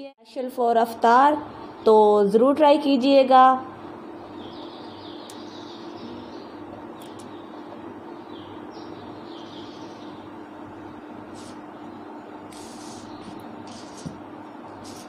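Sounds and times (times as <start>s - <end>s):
low room hum: 0.0s - 15.0s
birds chirping: 3.8s - 15.0s.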